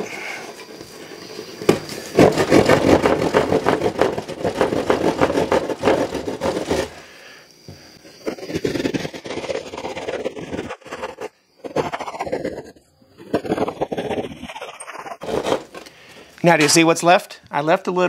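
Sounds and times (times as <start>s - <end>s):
hand saw sawing drywall: 2.0s - 7.0s, 8.2s - 12.7s, 13.4s - 15.8s.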